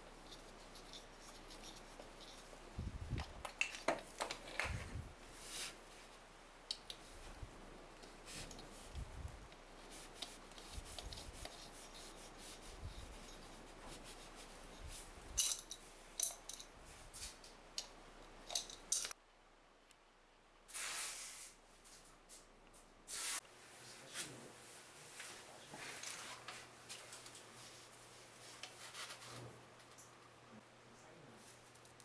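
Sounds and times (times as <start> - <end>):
wrench clicking and scraping: 18.5 - 19.2.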